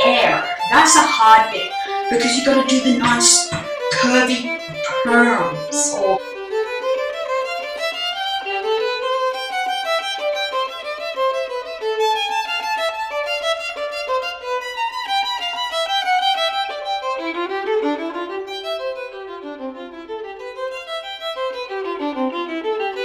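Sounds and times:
quick melody background music: 0:00.0 - 0:06.2.

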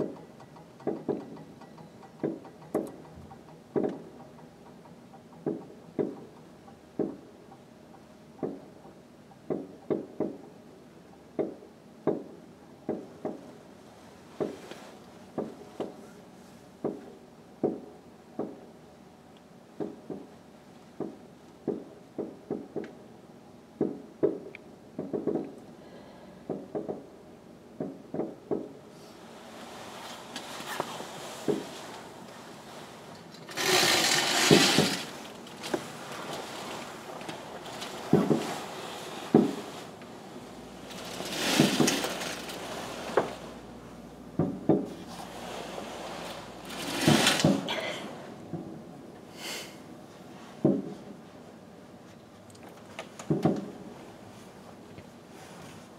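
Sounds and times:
fireworks crackling: 0:30.2 - 0:43.7, 0:44.8 - 0:47.8
fireworks bursting with sharp bangs: 0:33.5 - 0:40.0, 0:40.6 - 0:43.6, 0:44.4 - 0:47.8.

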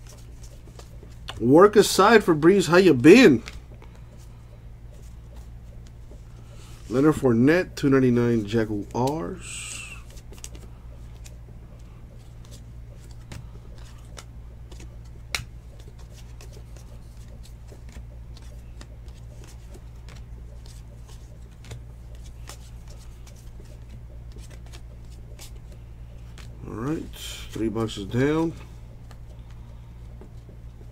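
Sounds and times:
steady low hum: 0:00.0 - 0:30.9
trading cards flicking: 0:08.4 - 0:30.9.

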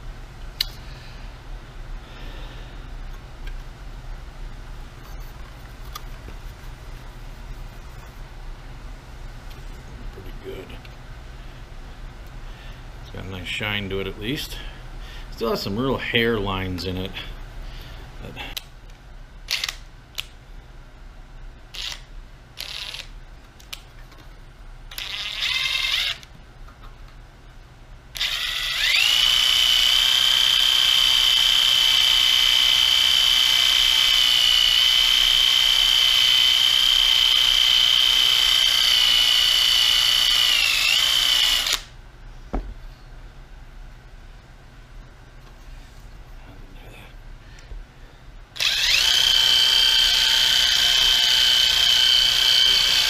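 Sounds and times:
cordless drill high whine: 0:21.8 - 0:23.1, 0:24.9 - 0:26.3, 0:28.2 - 0:41.9, 0:48.6 - 0:53.0.

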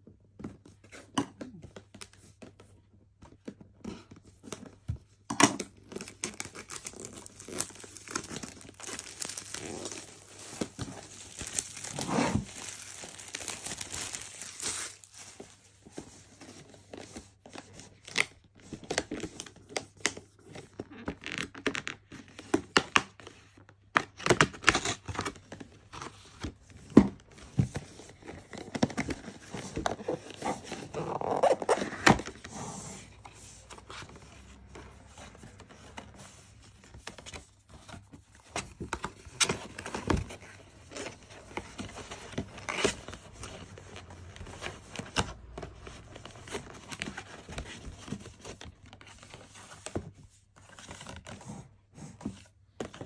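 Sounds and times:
cardboard rustling: 0:03.4 - 0:18.1, 0:24.5 - 0:53.0
cardboard scraping and tearing: 0:05.9 - 0:15.2, 0:27.6 - 0:34.8.

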